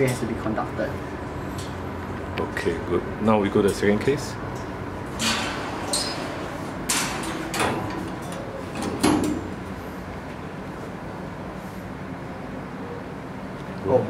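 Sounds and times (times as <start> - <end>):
steady background hum: 0.0 - 14.0
metal cage door knocks and rattles: 6.8 - 9.5.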